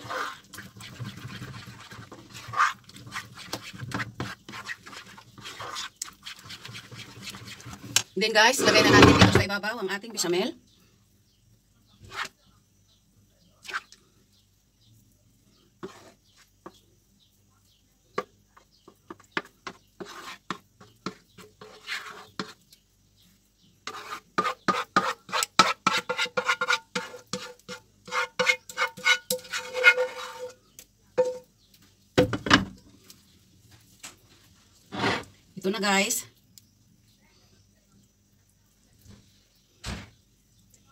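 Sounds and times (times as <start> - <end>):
spoon scraping and clinking on pan: 23.9 - 31.5.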